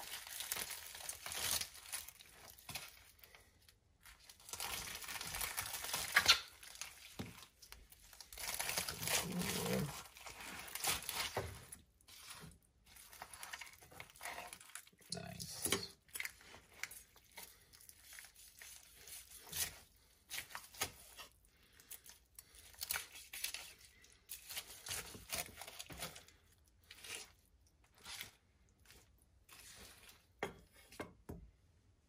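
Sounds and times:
meat tearing apart: 4.1s - 12.4s, 16.0s - 30.3s
knife crunching fried chicken skin: 16.0s - 28.4s.

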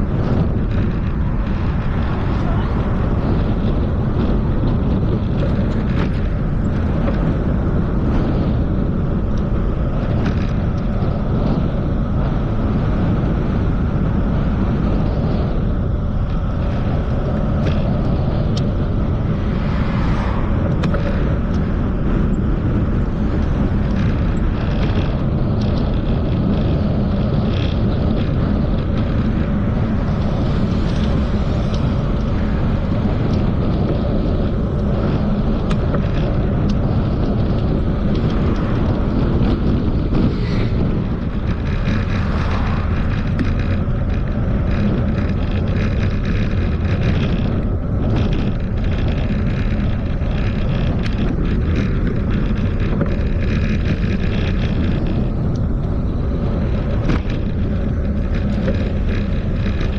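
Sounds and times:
bicycle tyres on road: 0.0s - 59.9s
wind on microphone: 0.0s - 59.9s
faint ticks and rattles: 14.8s - 59.9s.

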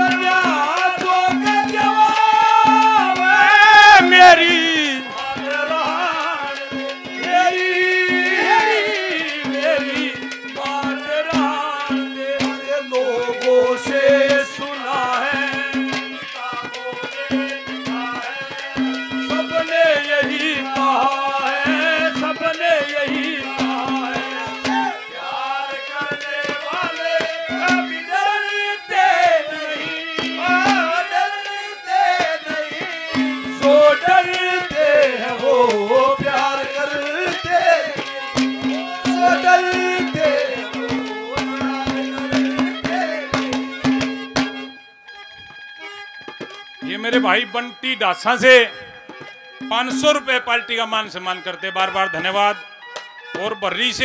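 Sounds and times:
hand drumming: 0.0s - 7.5s, 8.1s - 12.6s, 17.3s - 25.0s, 26.5s - 28.0s, 30.2s - 31.0s, 33.2s - 44.8s, 46.2s - 47.6s
gliding melody line: 46.8s - 47.9s, 48.6s - 52.5s.

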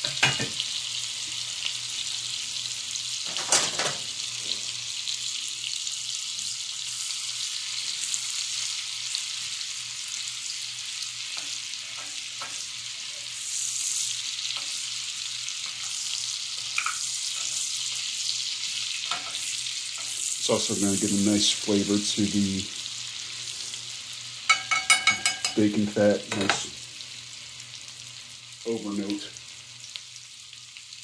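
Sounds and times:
onion sizzling in a skillet: 0.0s - 31.0s
metal spatula stirring: 24.5s - 25.7s.

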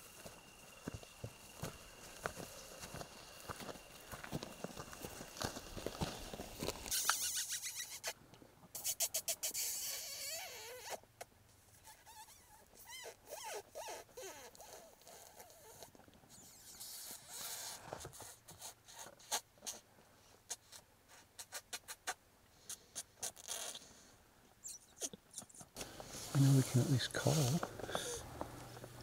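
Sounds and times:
high wavering lip squeaks: 6.8s - 8.2s, 8.8s - 11.0s, 11.8s - 19.8s, 21.4s - 23.8s, 24.6s - 25.7s.

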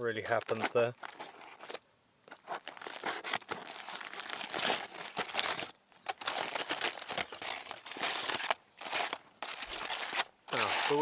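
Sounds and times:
aluminium foil crinkling and tearing: 0.2s - 11.0s.

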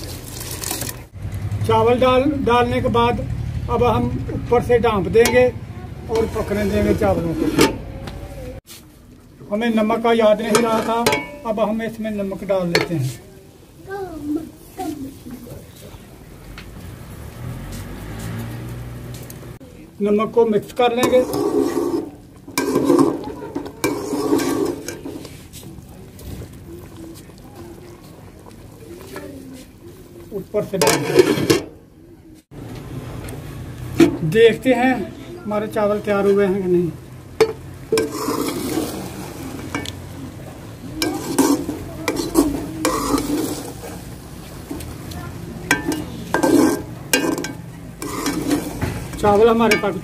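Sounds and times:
spoon stirring rice in pot: 9.8s - 13.2s, 20.6s - 31.6s, 37.4s - 50.0s
spoon clinking on pot: 10.5s - 11.6s, 37.4s - 38.6s, 45.7s - 48.8s, 49.7s - 50.0s.

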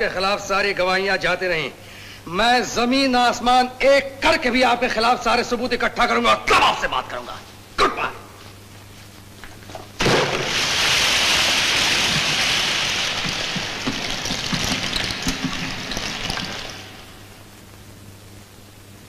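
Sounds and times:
water pouring and gushing: 10.3s - 17.5s.

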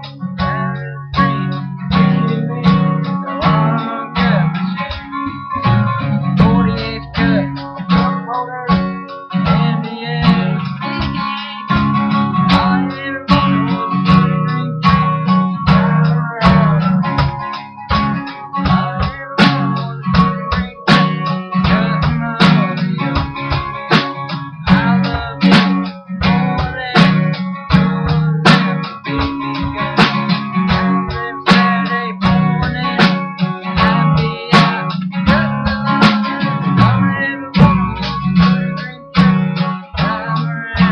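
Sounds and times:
acoustic guitar country instrumental: 0.0s - 40.9s.

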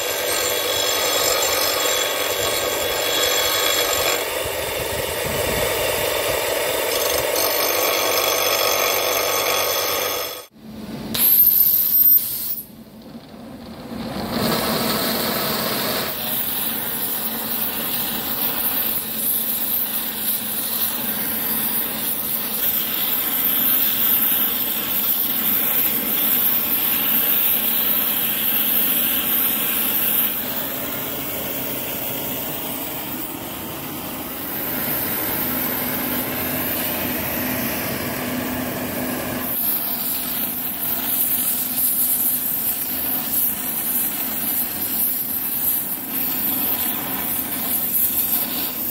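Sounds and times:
gas torch hissing: 11.1s - 12.7s, 14.4s - 48.9s.

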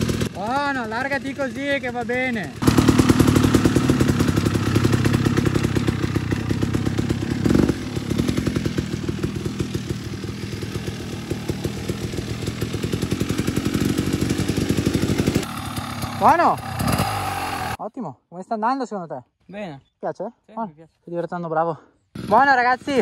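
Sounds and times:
dirt bike engine: 0.0s - 17.8s, 22.1s - 23.0s.

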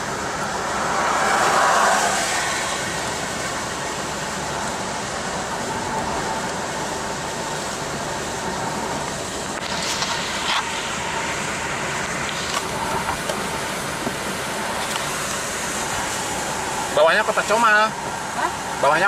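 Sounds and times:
rain on windshield: 0.0s - 19.0s
tyres hissing on wet road: 0.0s - 19.0s.

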